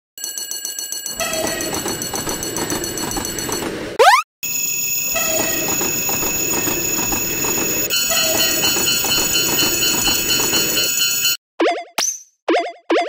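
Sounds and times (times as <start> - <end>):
railroad crossing bell ringing: 0.3 - 11.4
clatter of train wheels: 1.1 - 4.0, 5.0 - 11.4
train rumbling along rails: 1.1 - 4.0, 5.0 - 11.4.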